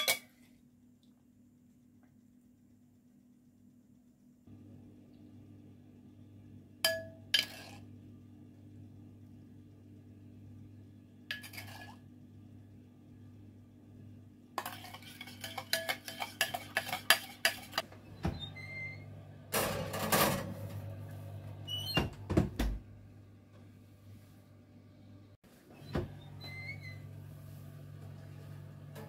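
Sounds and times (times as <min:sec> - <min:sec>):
metal kitchenware clinking: 0:00.0 - 0:00.4, 0:11.3 - 0:12.0, 0:14.6 - 0:17.8
pan scraping: 0:07.4 - 0:07.8, 0:11.3 - 0:12.0, 0:14.6 - 0:17.9.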